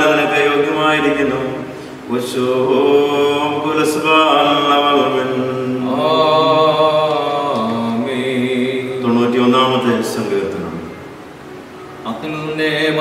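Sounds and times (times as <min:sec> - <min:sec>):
man chanting a prayer: 0:08.0 - 0:10.9.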